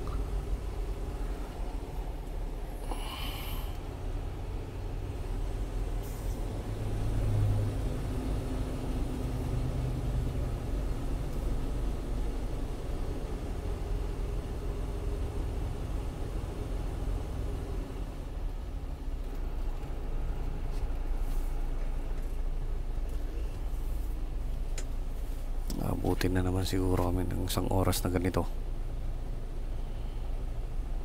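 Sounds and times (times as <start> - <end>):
truck diesel engine rumbling: 0.0 - 31.0.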